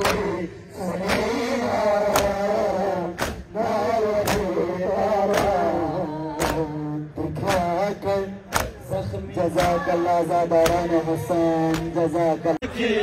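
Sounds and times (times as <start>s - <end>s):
men chanting in unison: 0.0s - 13.0s
chest-beating slaps: 1.0s - 3.6s, 4.2s - 4.6s, 5.3s - 5.7s, 8.5s - 8.8s, 9.5s - 9.8s.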